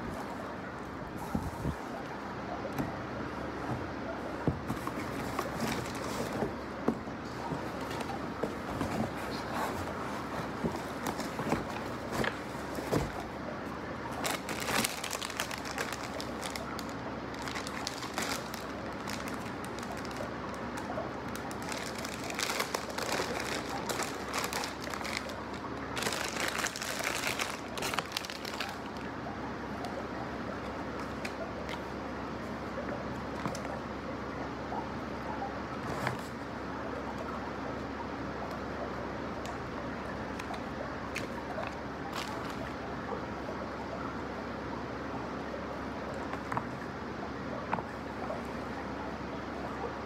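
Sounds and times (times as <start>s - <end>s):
plastic wrap crinkling: 4.6s - 6.8s, 14.0s - 29.2s, 40.4s - 42.8s.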